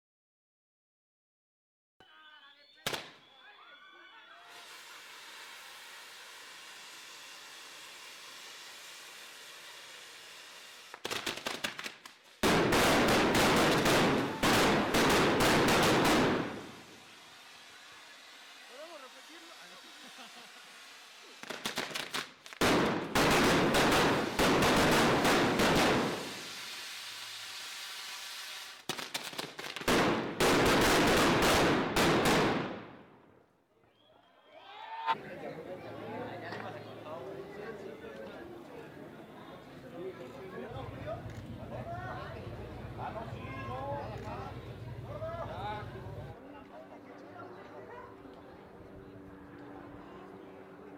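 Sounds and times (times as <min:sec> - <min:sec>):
steady hiss: 0:04.5 - 0:12.6, 0:13.6 - 0:23.1, 0:23.8 - 0:29.8
firecrackers banging: 0:04.6 - 0:33.3.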